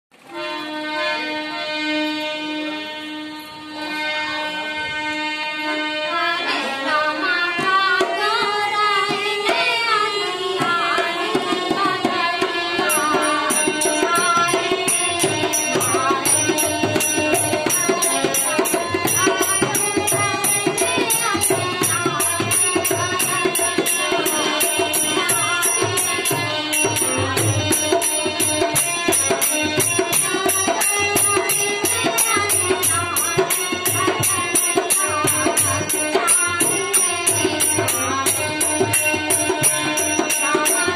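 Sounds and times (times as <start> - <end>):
harmonium playing folk melody: 0.1 - 40.9
fast jingling percussion: 12.8 - 40.9.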